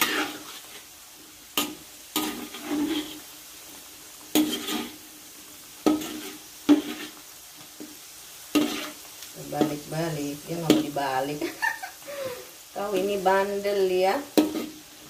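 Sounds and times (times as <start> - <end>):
metal spatula scraping pan: 0.0 - 0.9, 1.6 - 3.3, 4.3 - 5.0, 5.8 - 7.2, 8.5 - 9.9, 14.2 - 14.8
deep-frying sizzle: 0.0 - 15.0.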